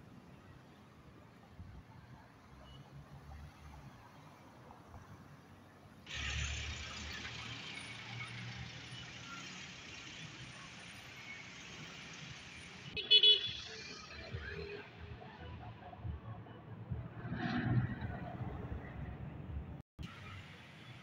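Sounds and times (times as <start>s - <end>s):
traffic passing: 0.0s - 21.0s
car horn toot: 13.0s - 14.0s.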